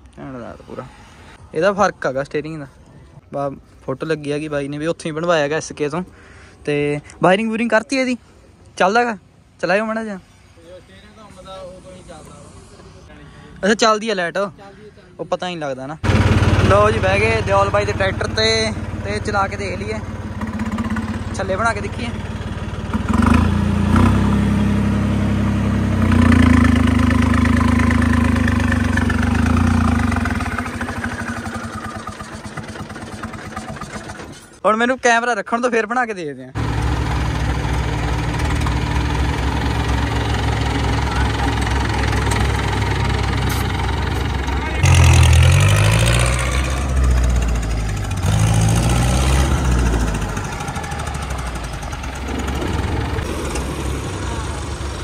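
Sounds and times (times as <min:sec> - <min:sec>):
tractor diesel engine revving: 0:16.0 - 0:34.6, 0:36.6 - 0:55.0.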